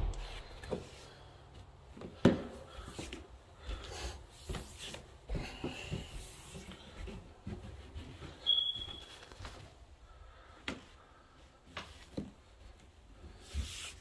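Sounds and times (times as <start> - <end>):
footsteps on carpeted stairs: 0.0 - 9.7.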